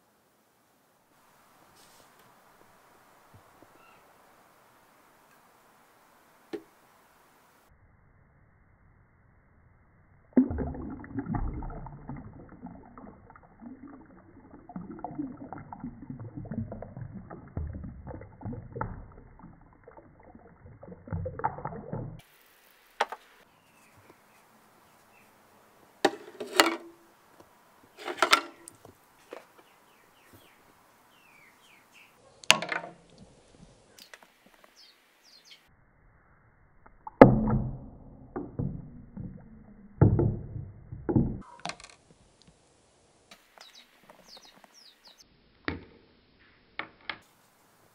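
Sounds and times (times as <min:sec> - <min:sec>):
water pouring into metal tank: 0:10.4 - 0:22.3.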